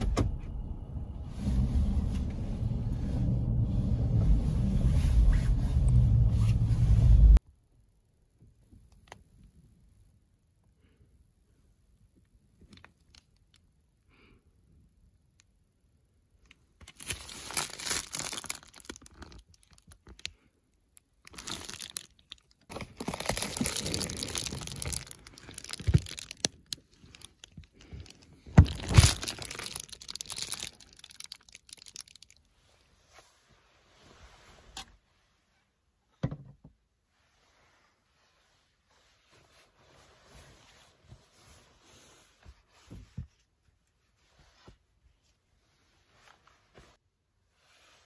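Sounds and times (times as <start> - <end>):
bedding and plastic bags rustling: 16.8 - 20.4, 21.2 - 32.6.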